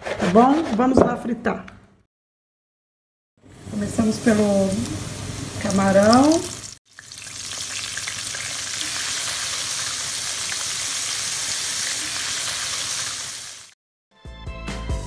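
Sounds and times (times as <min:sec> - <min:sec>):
shrimp deep-frying in oil: 0:03.5 - 0:13.8.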